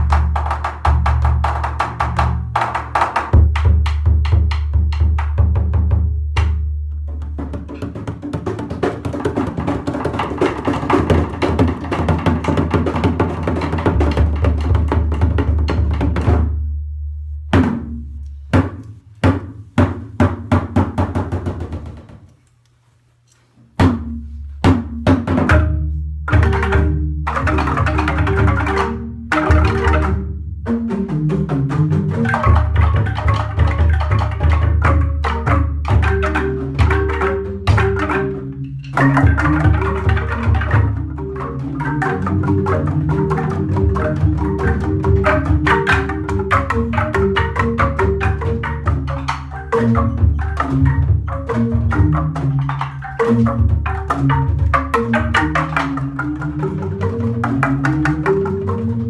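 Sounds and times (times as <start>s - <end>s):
bamboo percussion ensemble playing: 0.0s - 22.3s, 23.7s - 59.0s
deep booming bass tubes: 14.1s - 18.6s.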